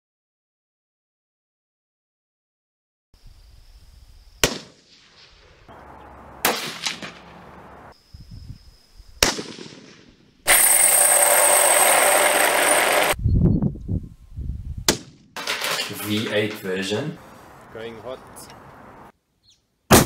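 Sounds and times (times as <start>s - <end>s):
rifle shots cracking: 4.4s - 5.4s, 6.4s - 7.4s, 9.2s - 10.1s
loud steady noise: 11.1s - 13.2s.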